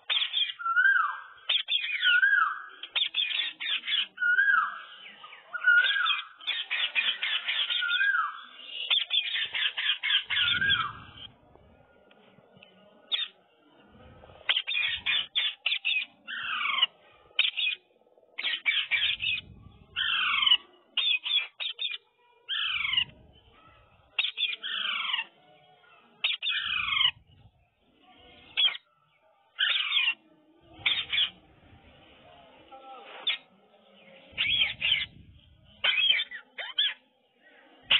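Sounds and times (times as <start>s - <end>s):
parakeet chattering and squawking: 0.0s - 0.8s, 1.5s - 4.4s, 5.6s - 8.2s, 8.8s - 11.3s, 14.4s - 17.8s, 18.4s - 23.2s, 24.1s - 25.4s, 26.2s - 27.2s, 28.5s - 28.9s, 29.6s - 30.2s, 30.8s - 31.4s, 34.4s - 37.0s.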